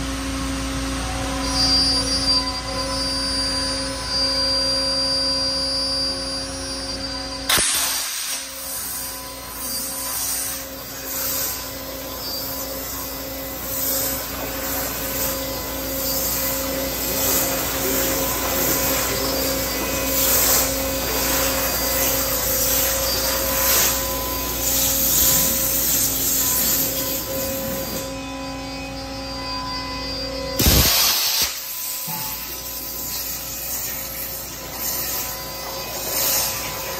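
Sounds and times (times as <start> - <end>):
waterjet hissing: 7.8 - 28.0, 30.6 - 36.9
low machine hum: 8.4 - 31.0.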